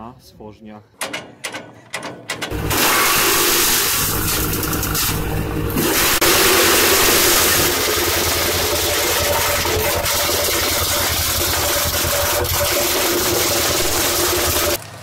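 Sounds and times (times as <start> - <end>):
tractor engine running: 2.5 - 15.0
wood chipper: 2.5 - 15.0.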